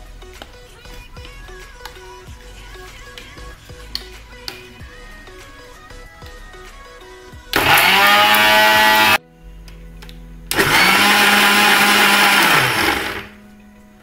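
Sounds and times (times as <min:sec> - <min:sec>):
mixer grinder motor whining: 0:07.5 - 0:09.2, 0:10.5 - 0:13.4.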